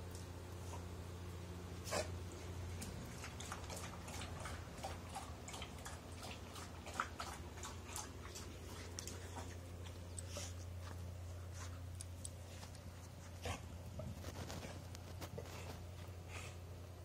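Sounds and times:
steady low hum: 0.0 - 17.0
puppy paws on dirt and straw: 6.3 - 16.3.

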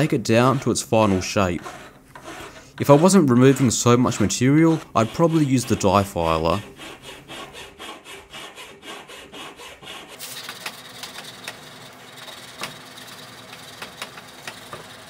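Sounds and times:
file rasping on metal: 0.0 - 10.2.

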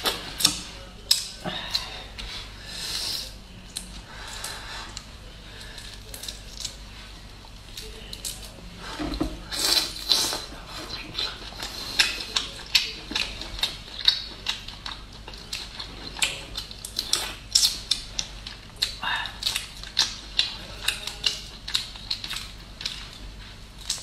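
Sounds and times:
wet chewing: 7.5 - 24.0.

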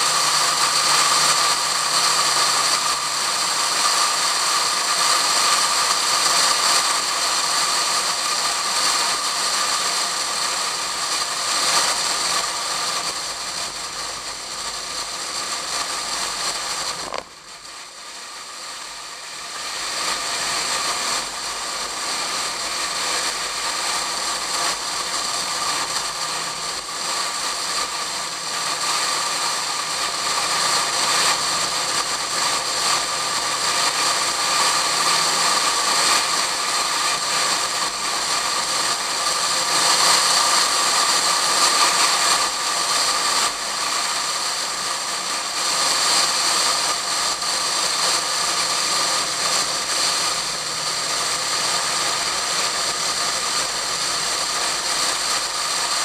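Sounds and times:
car engine running: 0.0 - 41.7, 42.3 - 56.0.

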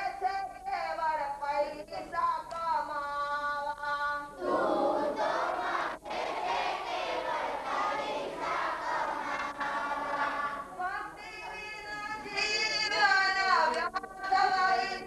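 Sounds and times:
children singing in unison: 4.3 - 11.6
crowd of voices singing: 4.3 - 12.3.

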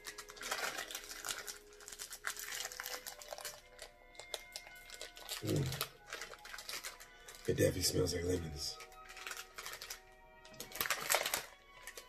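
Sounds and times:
plastic wrapper crinkling: 0.0 - 12.0
soft background music: 0.0 - 12.0.

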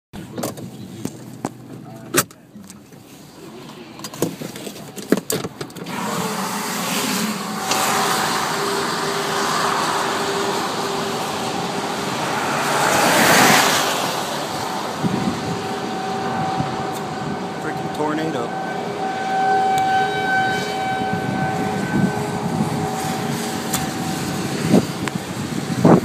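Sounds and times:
wind and rain rushing: 5.5 - 17.9, 20.9 - 26.0.

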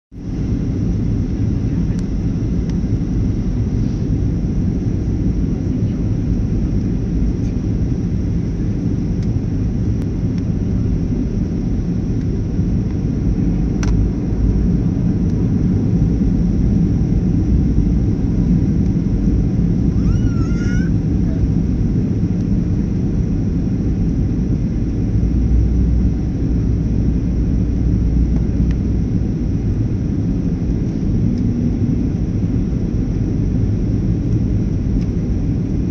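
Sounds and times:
jet engines low rumble: 0.1 - 35.9
rushing airflow: 2.4 - 5.6.

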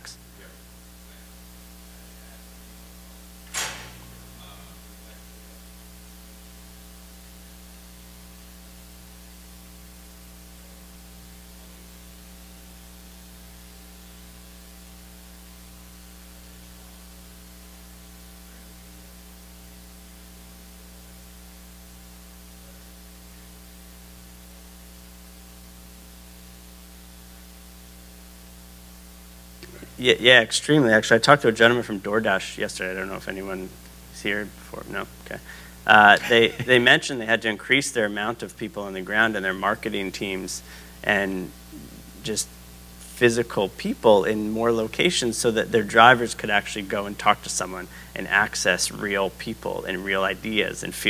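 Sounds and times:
electrical mains hum: 0.0 - 51.0
faint static hiss: 0.0 - 51.0
sharp click: 3.4 - 4.1.

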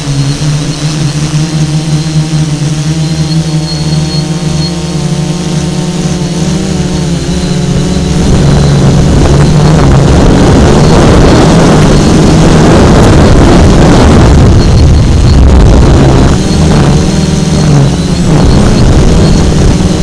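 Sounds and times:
drone propellers buzzing: 0.0 - 20.0
rushing air: 5.1 - 20.0.

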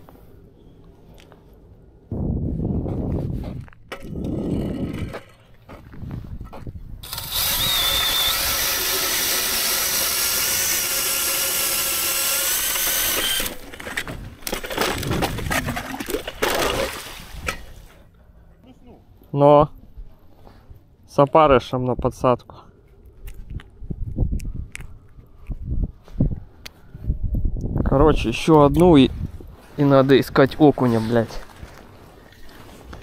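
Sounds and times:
ice auger motor whine: 7.0 - 14.0.

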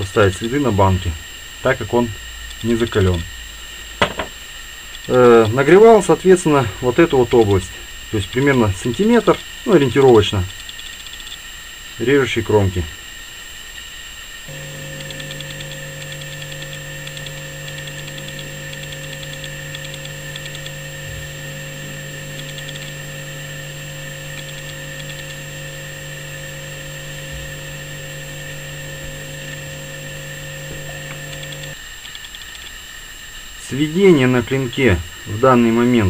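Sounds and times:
machine hum with steady tone: 0.0 - 36.0
faint rapid high ticking: 14.5 - 32.7.

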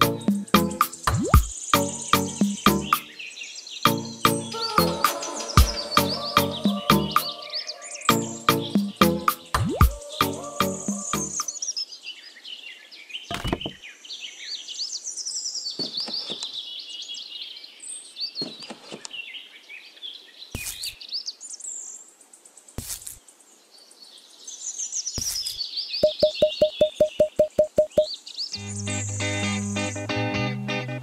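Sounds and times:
beat of repeated notes: 0.0 - 3.1, 3.9 - 7.3, 8.1 - 11.5, 26.0 - 28.1
small birds chirping: 0.0 - 30.1
short knocks: 13.3 - 13.8.

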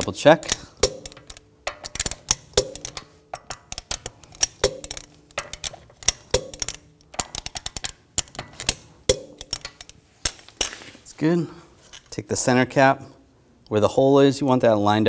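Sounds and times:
loud wrench click with ring: 0.5 - 10.4.

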